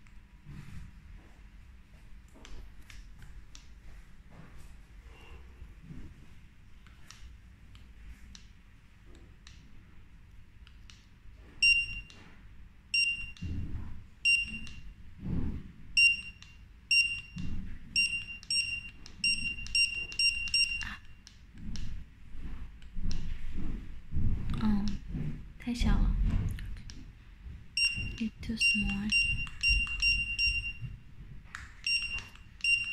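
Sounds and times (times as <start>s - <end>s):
barcode scanner beeps: 11.6s - 12.1s, 13.0s - 13.5s, 14.3s - 14.8s, 16.0s - 17.4s, 18.0s - 21.0s, 27.8s - 30.9s, 31.8s - 32.9s.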